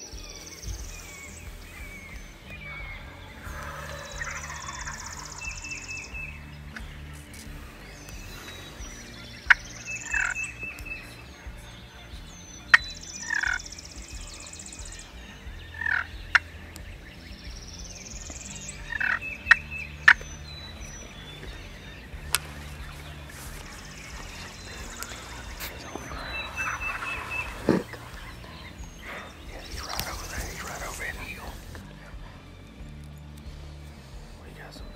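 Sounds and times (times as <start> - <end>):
songbirds singing: 0.0 - 34.9
turkey gobbling: 0.7 - 11.6, 12.6 - 31.8
sharp clicks: 17.6 - 31.9.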